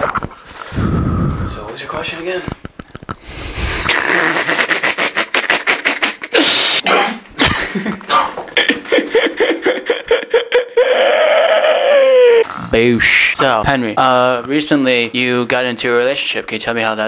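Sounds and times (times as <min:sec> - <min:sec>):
young man laughing hard: 0:03.8 - 0:06.8, 0:07.4 - 0:12.4.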